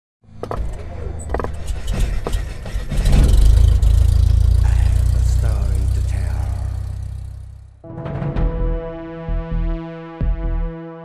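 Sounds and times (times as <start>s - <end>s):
deep rumble: 0.4s - 7.8s
sharp hits: 0.4s - 7.8s.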